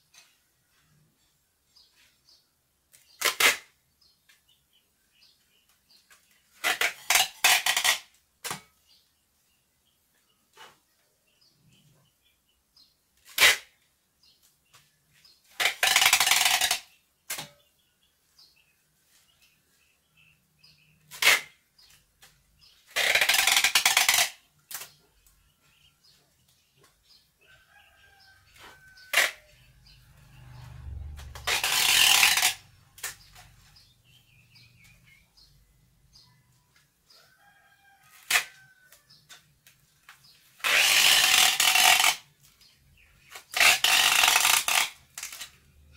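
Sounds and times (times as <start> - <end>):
tape ripping off roll: 3.0 - 3.8, 6.5 - 8.7, 13.2 - 13.8, 15.5 - 17.5, 21.1 - 21.6, 22.8 - 25.0, 28.6 - 29.5, 30.8 - 33.6, 38.2 - 38.6, 40.5 - 42.7, 43.3 - 45.6.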